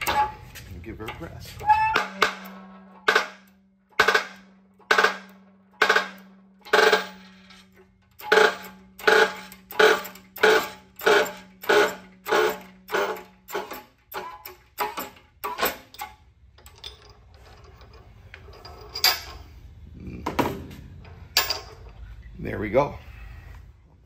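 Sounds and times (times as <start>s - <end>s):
metallic clacks of shop press: 0.0s - 17.7s.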